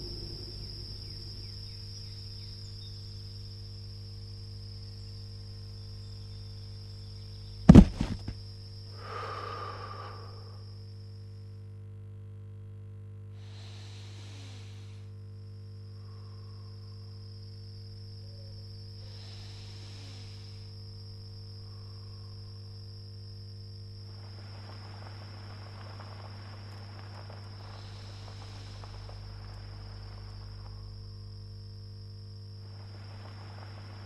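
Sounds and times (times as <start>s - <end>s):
crickets chirring: 0.0s - 11.9s, 13.3s - 34.0s
low steady hum: 0.0s - 34.0s
crackling hiss: 7.7s - 10.9s, 13.4s - 15.2s, 18.8s - 34.0s
slow breaths of sleeper: 8.9s - 10.7s, 13.3s - 15.2s, 16.0s - 17.0s, 19.0s - 20.8s, 27.2s - 30.4s.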